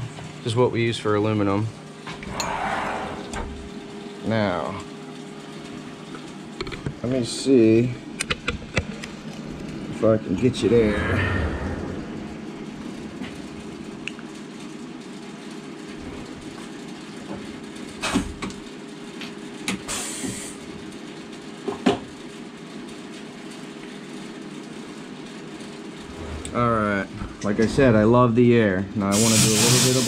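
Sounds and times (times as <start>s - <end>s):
machine hum: 0.0s - 16.9s
air hiss: 19.9s - 20.6s, 29.1s - 30.0s.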